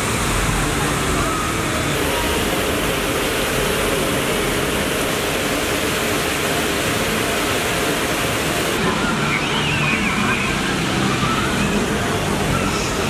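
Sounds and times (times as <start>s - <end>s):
water cascading down fountain: 0.0s - 13.0s.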